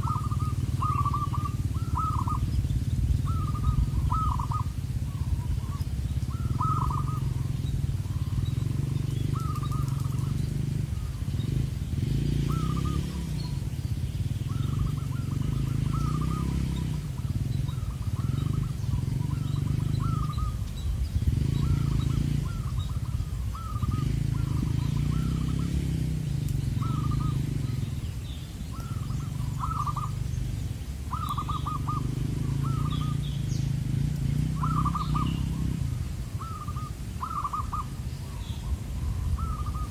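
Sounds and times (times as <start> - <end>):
doves cooing: 0.0 - 39.9.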